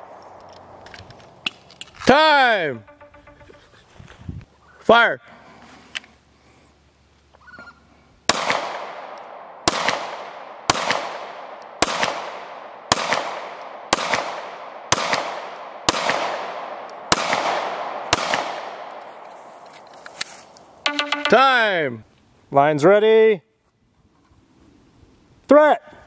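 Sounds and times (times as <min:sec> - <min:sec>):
pistol shots echoing: 0:08.3 - 0:19.0.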